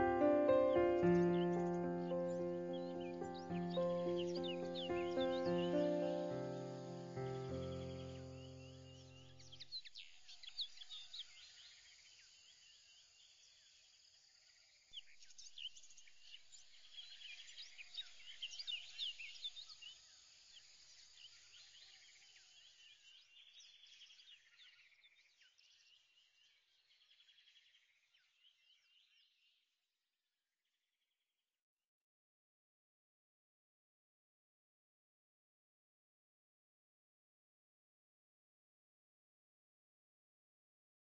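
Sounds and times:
small birds chirping: 0.0 - 13.8, 15.0 - 29.6.

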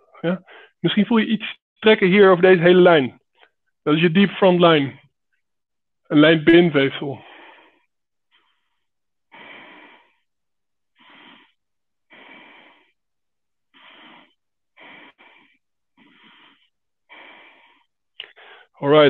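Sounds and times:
man breathing: 0.4 - 0.8, 7.2 - 18.8.

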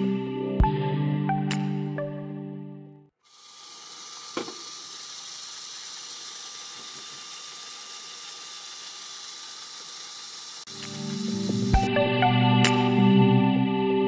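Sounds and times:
toy train motors whirring: 3.2 - 11.9
sharp click: 10.7 - 11.9.

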